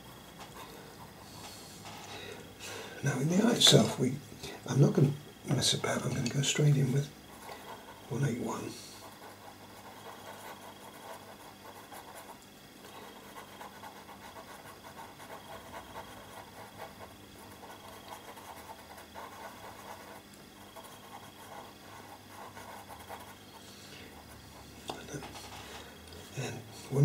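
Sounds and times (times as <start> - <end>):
pencil scratching on paper: 5.9 - 25.9.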